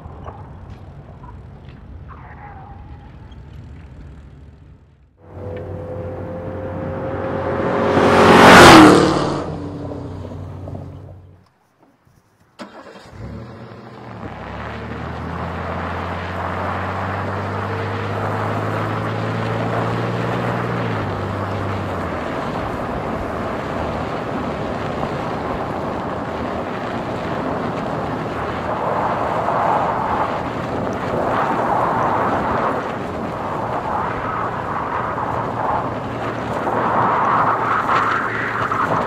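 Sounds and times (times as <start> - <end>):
tyres on dirt: 0.0 - 6.2
car engine hum: 0.0 - 11.4, 12.6 - 39.0
wind noise: 14.0 - 39.0.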